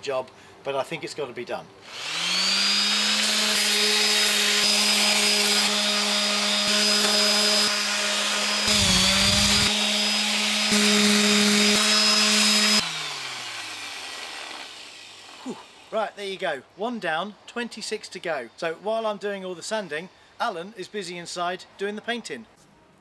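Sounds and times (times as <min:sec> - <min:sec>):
orbital sander whining: 0:01.8 - 0:16.0.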